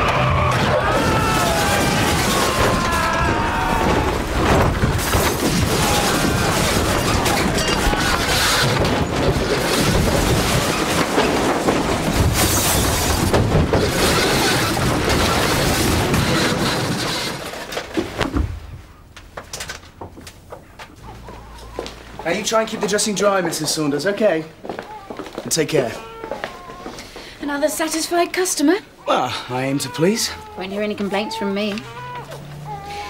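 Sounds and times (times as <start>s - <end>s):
vehicle crash rumble and clatter: 0.0s - 18.8s.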